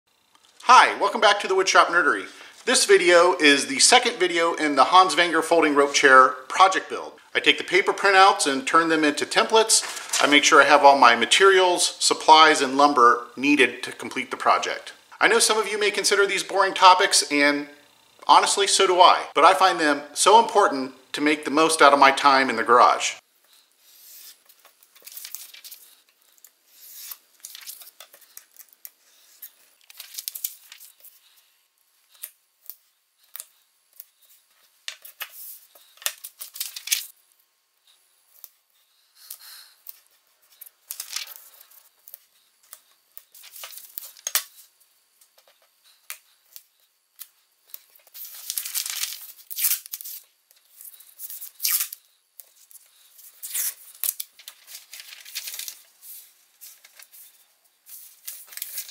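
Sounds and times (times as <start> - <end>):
masking tape ripping off roll: 48.0 - 52.1, 53.2 - 55.8.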